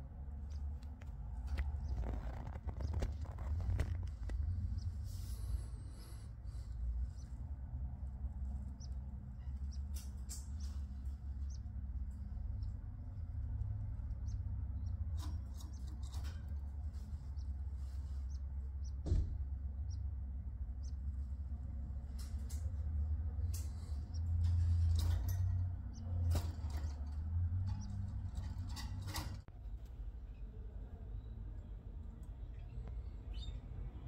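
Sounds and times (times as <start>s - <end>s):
steady low hum: 0.0s - 34.0s
canaries cheeping: 8.4s - 19.0s, 19.6s - 21.2s, 32.4s - 34.0s
sharp knock: 19.0s - 19.4s.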